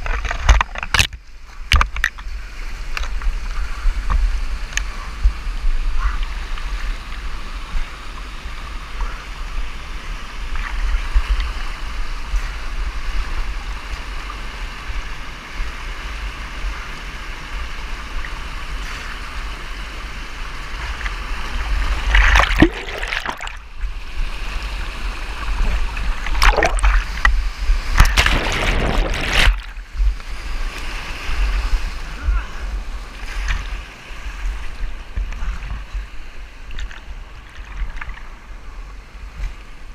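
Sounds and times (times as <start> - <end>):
whitewater rushing: 17.6 - 33.6
wind buffeting microphone: 20.7 - 38.0
loud water splashes: 21.4 - 23.8, 24.6 - 31.4.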